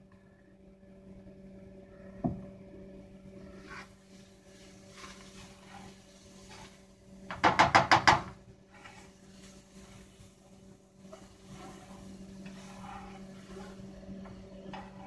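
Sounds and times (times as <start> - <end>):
butter sizzling: 3.5 - 15.0.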